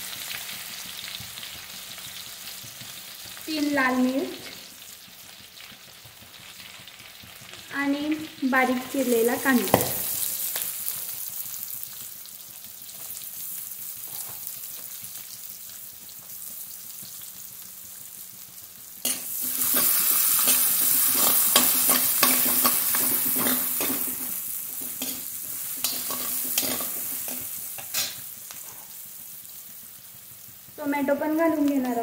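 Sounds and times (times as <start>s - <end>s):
onion sizzling in pan: 0.0s - 32.0s
spoon scraping pan: 19.0s - 29.0s.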